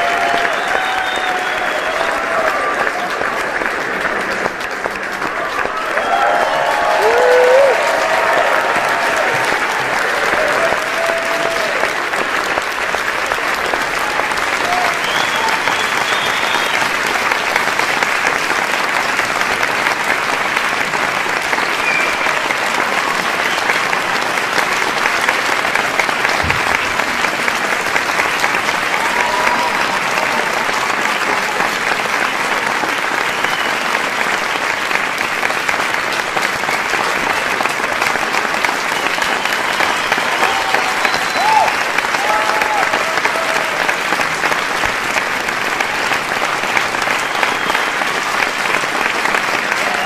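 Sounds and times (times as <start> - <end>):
shouts and cheers: 0.0 - 3.6, 5.2 - 12.2, 13.6 - 17.0, 28.4 - 31.8, 38.8 - 44.4, 49.6 - 50.0
crowd applauding: 0.0 - 50.0.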